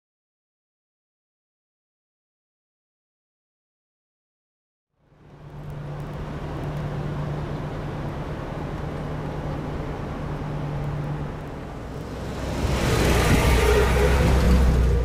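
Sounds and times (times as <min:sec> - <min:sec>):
vehicle engine and road noise: 0:04.9 - 0:15.0.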